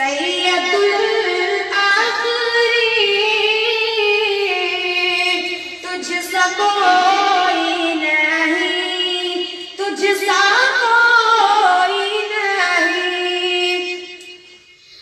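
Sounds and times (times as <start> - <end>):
boy singing devotional song: 0.0 - 15.0.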